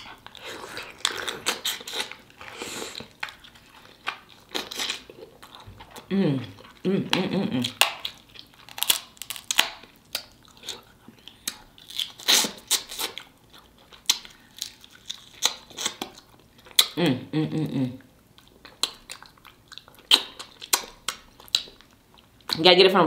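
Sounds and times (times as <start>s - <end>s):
chewing and smacking: 0.0s - 17.0s, 18.0s - 22.7s
crab shell crunching: 0.0s - 17.0s
person humming: 6.1s - 7.8s, 17.0s - 18.0s.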